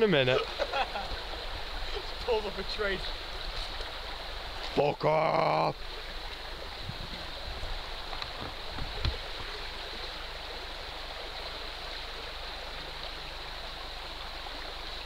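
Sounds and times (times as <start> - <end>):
stream flowing: 0.0 - 15.0.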